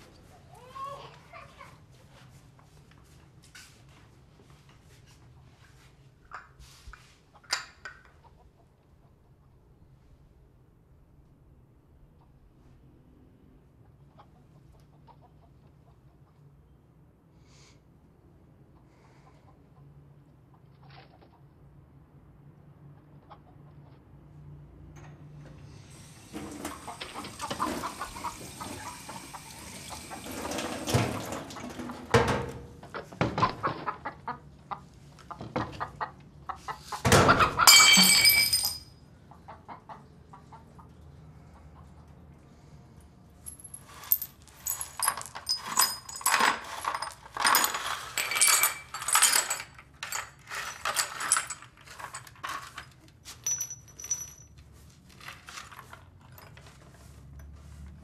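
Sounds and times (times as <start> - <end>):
glass breaking: 37.6 - 38.9.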